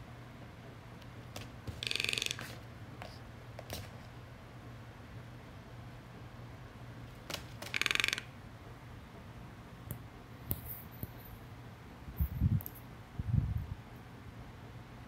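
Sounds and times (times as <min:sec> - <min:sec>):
bird bill tapping on wood: 0:01.4 - 0:02.6, 0:07.3 - 0:08.3.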